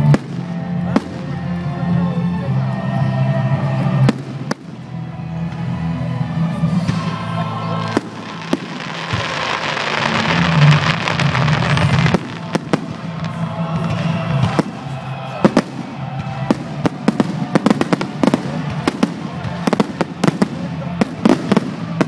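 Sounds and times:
music playing: 0.0s - 22.0s
fireworks rushing hiss: 6.7s - 22.0s.

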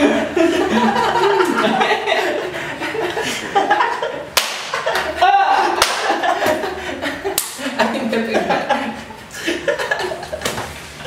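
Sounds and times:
men laughing loudly: 0.0s - 11.0s
high five hand slap: 4.4s - 5.1s, 5.8s - 6.6s.

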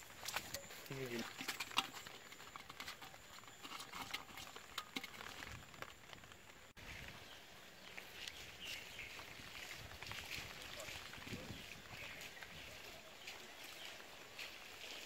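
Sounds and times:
fish flapping in wet pot: 0.0s - 6.5s
faint outdoor background: 0.0s - 15.0s.

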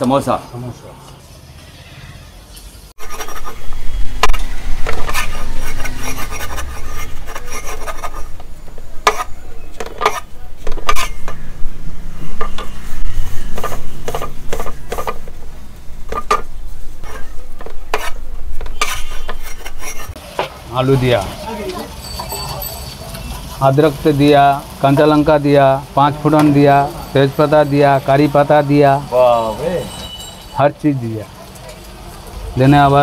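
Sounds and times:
gritty scraping in breadcrumbs: 4.9s - 8.3s.

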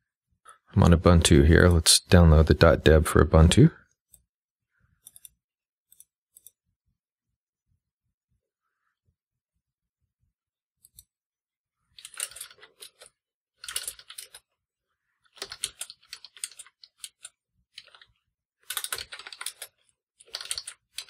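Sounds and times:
typing on computer keyboard: 15.4s - 21.0s.

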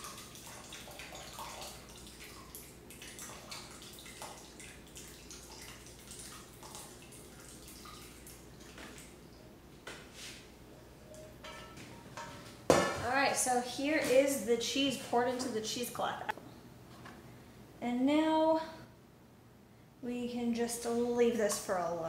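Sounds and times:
dripping: 0.0s - 9.2s
liquid pouring and splashing: 0.0s - 9.2s.

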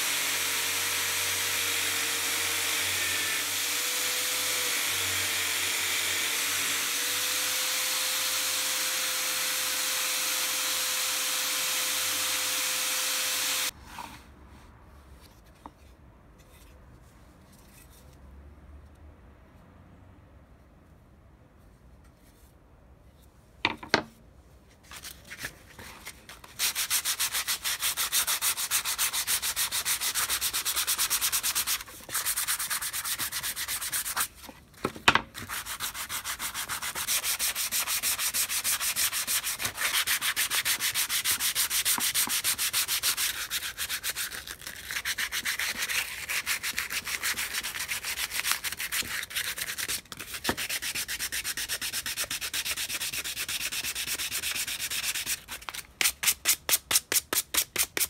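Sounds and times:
sandpaper rubbing on wood: 26.6s - 34.3s, 35.4s - 58.0s.

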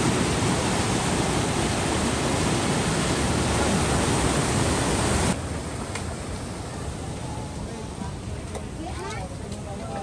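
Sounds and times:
whitewater rushing: 0.0s - 5.8s.

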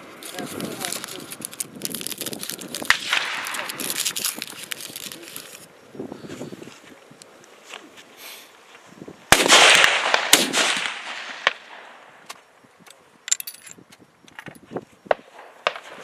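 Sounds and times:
rifle shot: 2.9s - 3.6s, 9.3s - 12.0s.

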